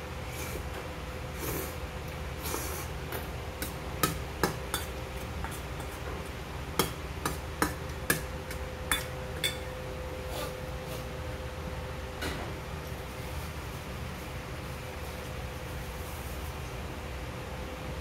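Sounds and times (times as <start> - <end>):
metal spoon clinking on steel bowl: 6.8 - 9.7.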